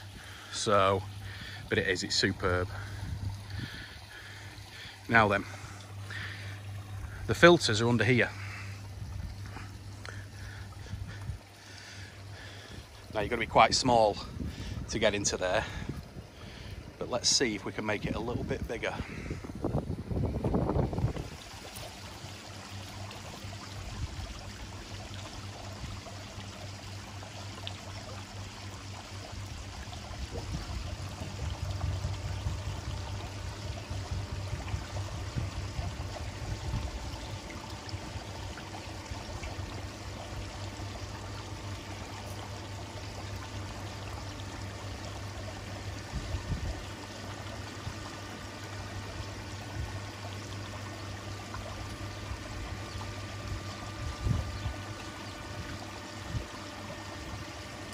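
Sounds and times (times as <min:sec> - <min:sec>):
low hum: 0:00.0 - 0:57.9.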